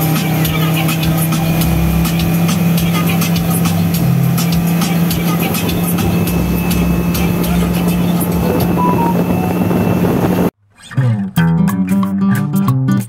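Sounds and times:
speedboat engine humming: 0:00.0 - 0:10.5
water noise: 0:00.0 - 0:10.5
plucked acoustic guitar music: 0:10.8 - 0:13.0.

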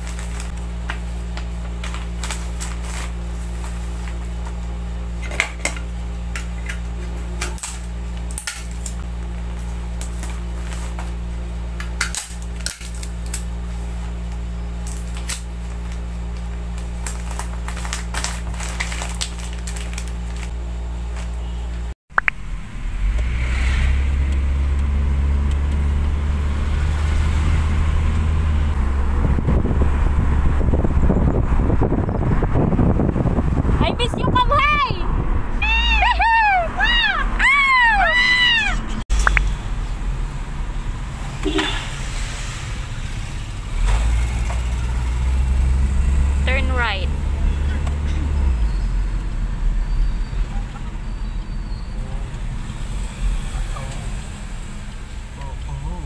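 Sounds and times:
paper and plastic crinkling: 0:00.0 - 0:04.6, 0:14.8 - 0:21.4
moving car rumble: 0:00.0 - 0:56.0
steady low hum: 0:00.0 - 0:56.0
wind noise: 0:25.8 - 0:37.4.

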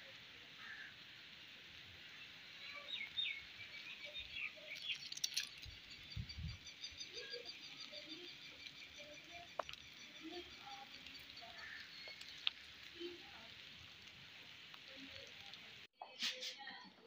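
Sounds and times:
soft steady hiss: 0:00.0 - 0:06.1, 0:08.6 - 0:15.9
birdsong chirps and calls: 0:02.0 - 0:15.9.

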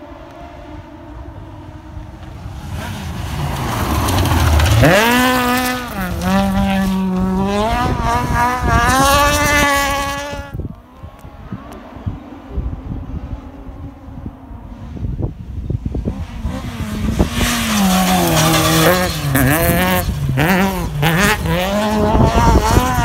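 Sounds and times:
rally car passing at speed: 0:00.0 - 0:23.0
engine revving with gear changes: 0:00.1 - 0:14.8, 0:16.0 - 0:23.0.

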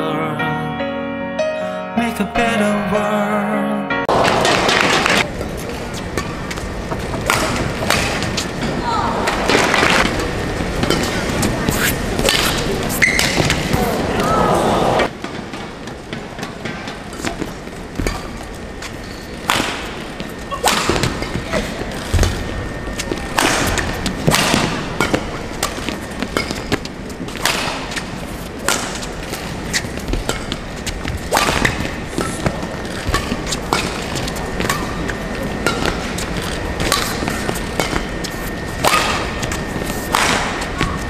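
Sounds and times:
arena background noise: 0:02.2 - 0:41.0
rackets hitting shuttlecock: 0:06.2 - 0:13.9, 0:19.1 - 0:41.0.

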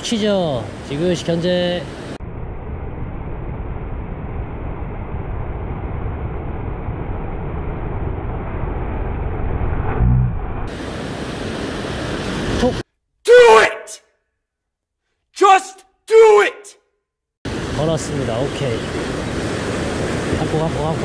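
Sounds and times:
low hum: 0:02.2 - 0:12.6
wind rumble on microphone: 0:02.2 - 0:12.8.

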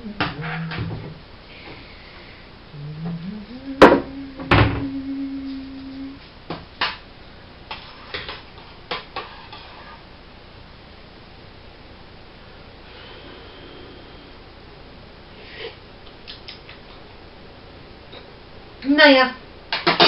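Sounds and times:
steady hum rising in pitch: 0:00.0 - 0:07.6, 0:10.2 - 0:16.0.

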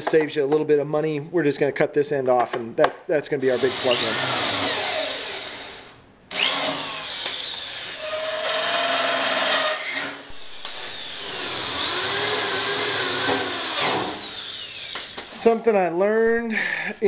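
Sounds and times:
cordless drill driving screws: 0:03.6 - 0:15.4.

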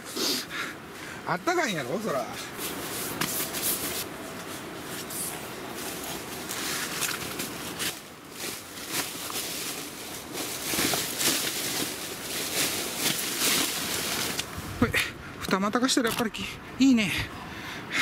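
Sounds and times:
fabric rustling and flapping: 0:02.6 - 0:14.6.

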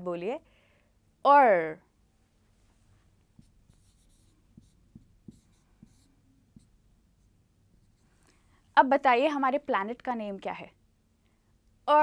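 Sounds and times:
marker squeaking on whiteboard: 0:03.4 - 0:06.7.

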